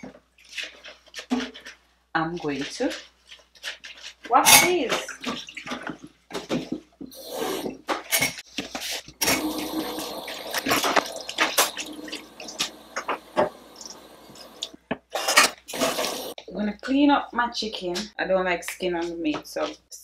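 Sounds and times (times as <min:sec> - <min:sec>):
tap water running into sink: 0:07.1 - 0:07.7, 0:09.2 - 0:16.4
dishes clinking in sink: 0:09.2 - 0:16.4.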